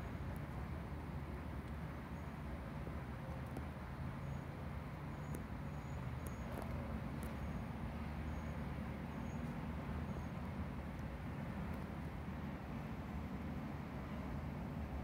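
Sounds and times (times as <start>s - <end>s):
faint ticks: 5.2s - 7.6s.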